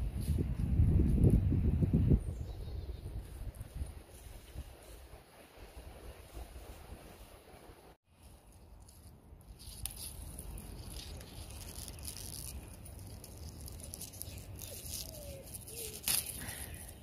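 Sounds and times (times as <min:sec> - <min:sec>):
dry leaves rustling and crackling: 0:08.1 - 0:17.0.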